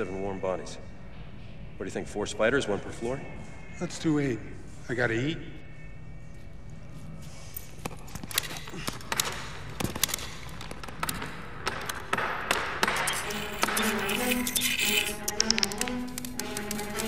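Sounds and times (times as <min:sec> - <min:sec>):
metallic taps and clicks: 0:07.8 - 0:17.0
background music: 0:11.2 - 0:17.0.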